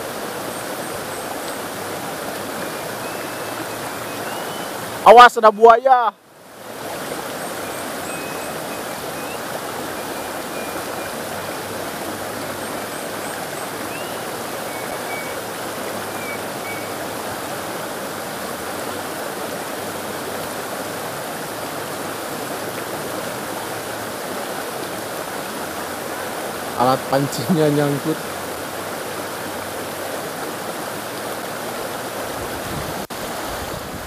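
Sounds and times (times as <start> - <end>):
river water rushing: 0.0 - 34.0
faint high chirps: 2.6 - 4.8, 7.6 - 11.7, 13.8 - 15.4, 16.1 - 17.0.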